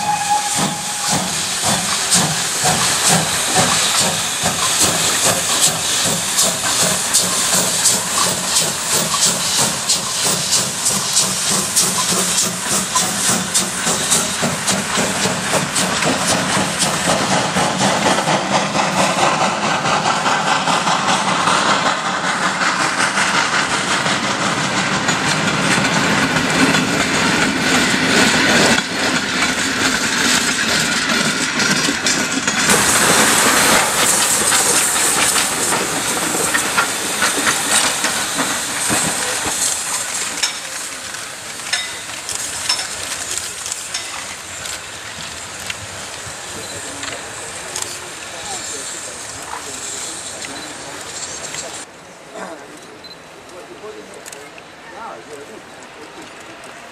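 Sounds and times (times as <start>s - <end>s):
steam locomotive exhaust beats: 0.0s - 51.9s
loud steam hiss: 0.0s - 52.2s
coaches wheel and rail noise: 0.0s - 56.9s.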